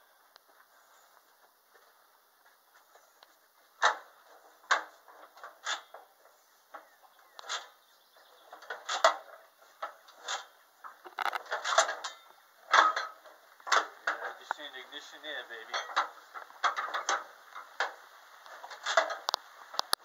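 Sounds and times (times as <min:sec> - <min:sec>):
sharp metallic clanks: 0:08.5 - 0:18.0.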